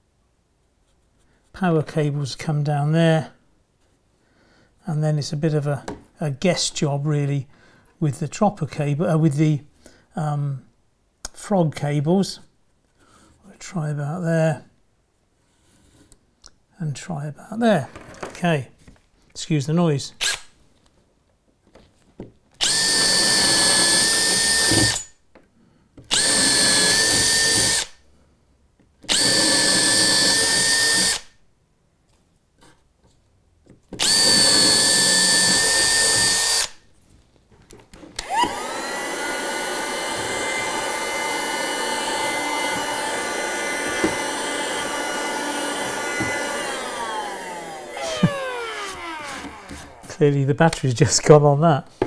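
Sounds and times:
handheld vacuum running: 22.6s - 25.0s, 26.1s - 27.9s, 29.1s - 31.2s, 34.0s - 36.7s, 38.2s - 50.1s
cordless drill boring holes: 22.6s - 25.2s, 26.1s - 28.0s, 29.0s - 31.4s, 34.0s - 36.8s, 38.2s - 50.1s.

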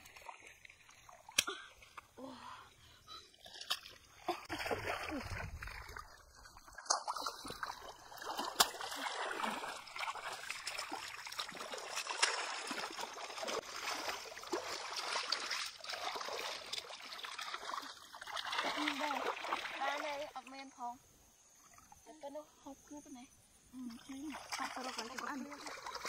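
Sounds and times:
water trickling: 0.0s - 22.2s, 23.7s - 26.0s
sharp water slap: 1.3s - 1.6s, 6.7s - 20.0s
hands splashing in muddy water: 3.4s - 20.1s, 24.0s - 26.0s.

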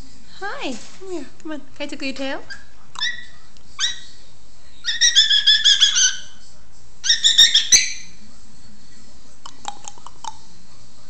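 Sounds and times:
parrot squeaky calls: 2.5s - 4.2s, 4.8s - 6.4s, 7.0s - 8.2s.

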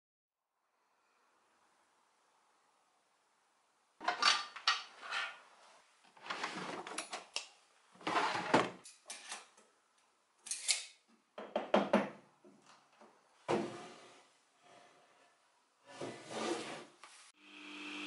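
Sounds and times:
drawer sliding open: 6.2s - 7.2s, 8.0s - 9.4s, 15.9s - 17.0s
saw table sliding along rails: 13.5s - 17.2s.

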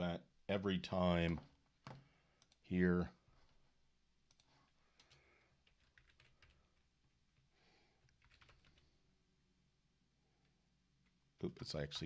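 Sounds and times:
faint keyboard typing: 1.3s - 2.8s, 4.2s - 9.0s.

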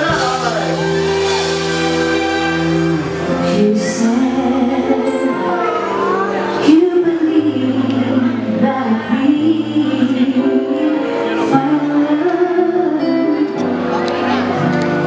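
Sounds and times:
drums: 0.0s - 5.3s
guitar: 0.0s - 15.0s
keyboard chords: 0.0s - 15.0s
person singing: 0.0s - 15.0s.

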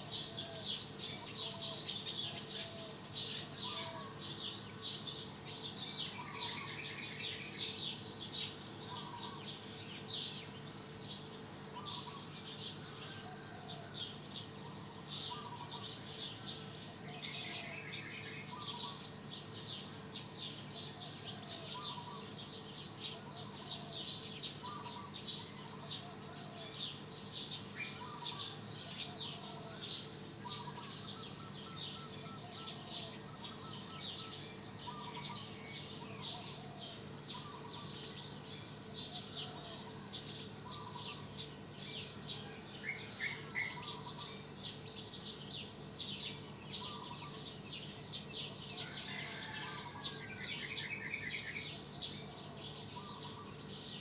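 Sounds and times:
bird trill: 0.0s - 13.9s, 26.8s - 54.0s
steady low hum: 0.0s - 49.0s
small birds chirping: 0.0s - 54.0s
bird repeating low call: 27.8s - 38.3s, 38.9s - 41.3s.

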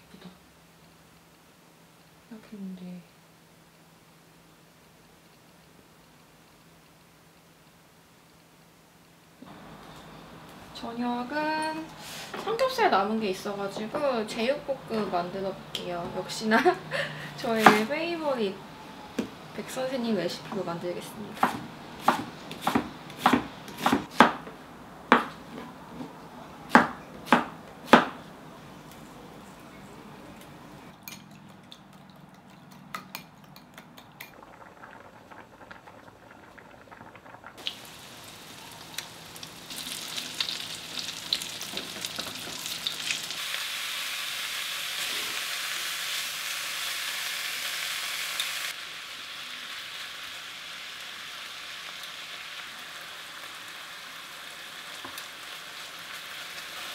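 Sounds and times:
knife chopping on wooden board: 21.4s - 24.5s, 25.1s - 25.4s, 26.7s - 28.2s
meat sizzling in a pan: 37.6s - 56.9s.

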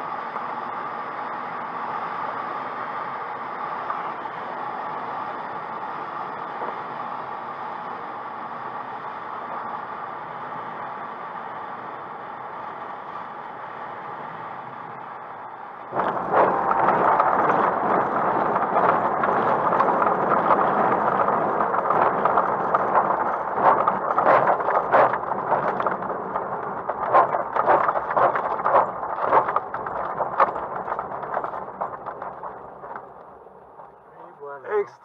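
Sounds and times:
wheel rumbling over bumpy grass: 14.7s - 35.0s
glider touching down: 15.9s - 34.2s
airframe knocks and rattles: 16.0s - 34.0s.

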